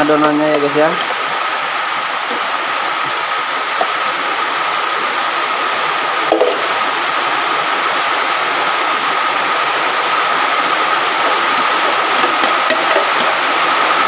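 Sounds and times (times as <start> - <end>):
hot oil sizzling: 0.0 - 14.0.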